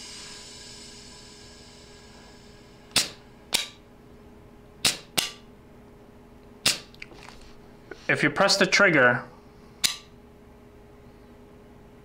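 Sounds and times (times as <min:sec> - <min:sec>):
faint high hiss: 0:00.0 - 0:03.5.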